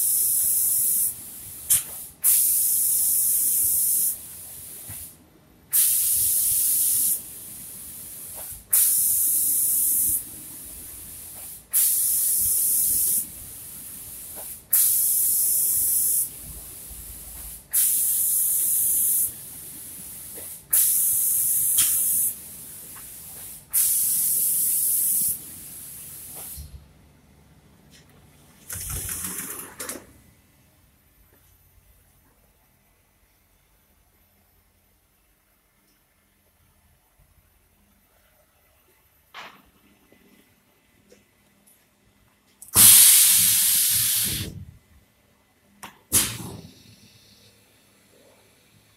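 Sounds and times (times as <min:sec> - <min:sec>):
spray gun hissing bursts: 0:00.0 - 0:26.7, 0:42.8 - 0:44.6
spray gun click: 0:01.7 - 0:02.5, 0:21.6 - 0:22.3, 0:42.6 - 0:44.5, 0:45.8 - 0:46.6.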